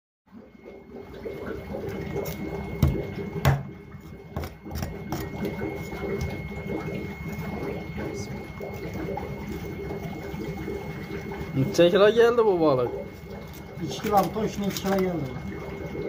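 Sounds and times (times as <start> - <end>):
knocks on wooden board: 2.8 - 3.7.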